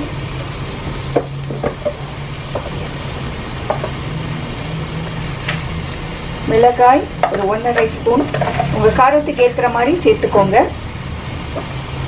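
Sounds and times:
oil popping: 0:00.0 - 0:09.0
sizzling in a frying pan: 0:00.0 - 0:12.0.

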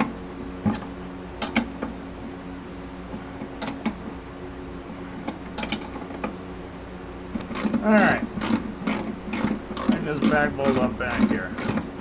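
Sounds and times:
steady low hum: 0:00.0 - 0:12.0
wrench clicking on metal bolts: 0:08.4 - 0:11.8.

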